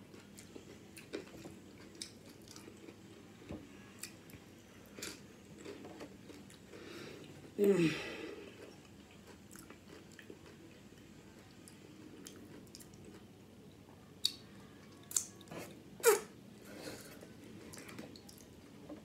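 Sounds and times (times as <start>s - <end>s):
person chewing nachos: 0.1s - 3.1s, 3.9s - 7.6s, 8.2s - 13.4s.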